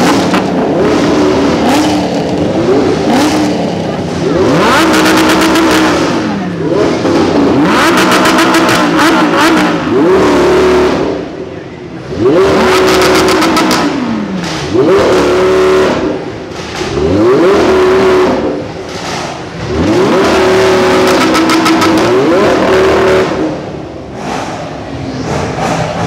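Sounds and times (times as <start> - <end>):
car engine revving: 0.0 - 26.0.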